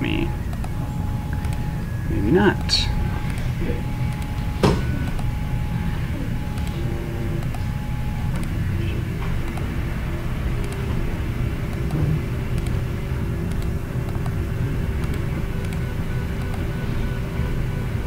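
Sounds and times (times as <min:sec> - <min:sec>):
low rumbling hum: 0:00.0 - 0:18.0
computer mouse clicks: 0:00.5 - 0:01.7, 0:03.2 - 0:05.3, 0:06.5 - 0:06.8, 0:07.4 - 0:08.6, 0:09.4 - 0:09.7, 0:10.6 - 0:10.9, 0:11.7 - 0:12.8, 0:13.4 - 0:14.4, 0:15.0 - 0:16.6.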